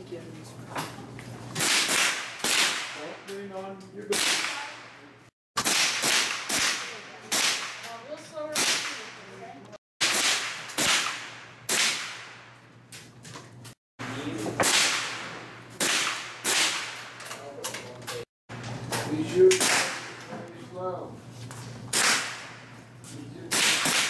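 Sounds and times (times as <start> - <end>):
rifle shots cracking: 1.6 - 3.2, 4.1 - 5.0, 5.6 - 8.0, 8.6 - 9.3, 10.0 - 12.5, 14.6 - 17.2, 19.5 - 20.3, 21.9 - 22.7, 23.5 - 24.0.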